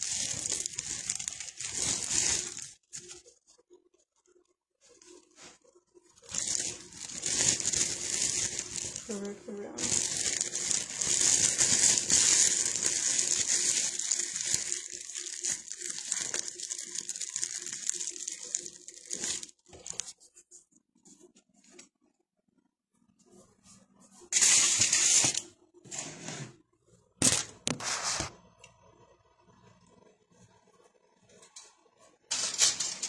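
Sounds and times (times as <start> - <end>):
aluminium foil crinkling: 0.0 - 20.4, 24.3 - 25.5, 27.2 - 28.4, 32.3 - 33.0.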